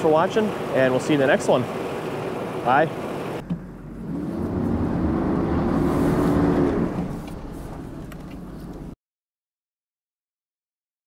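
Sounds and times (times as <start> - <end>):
diesel truck engine revving: 3.3 - 8.9.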